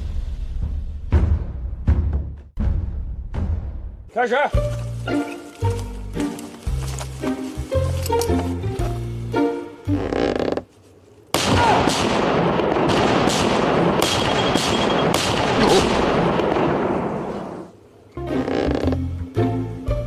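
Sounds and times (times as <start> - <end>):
background music: 0.2 - 10.6, 18.1 - 20.0
sharp bangs: 11.4 - 17.7.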